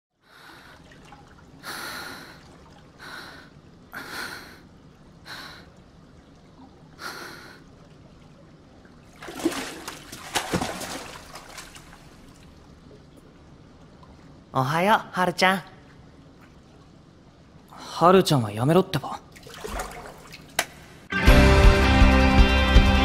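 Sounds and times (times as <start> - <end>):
swimmer breathing heavily: 0.2 - 5.8, 6.9 - 7.8
pool water splashing: 0.3 - 14.8, 19.2 - 21.1.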